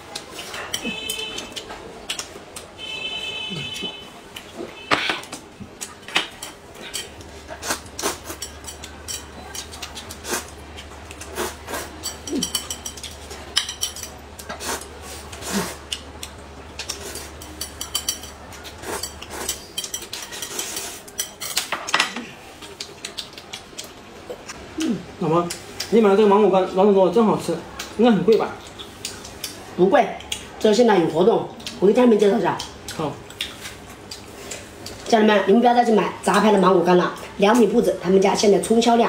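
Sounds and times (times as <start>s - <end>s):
mouth sounds of eating: 14.4s - 17.6s, 22.2s - 25.9s.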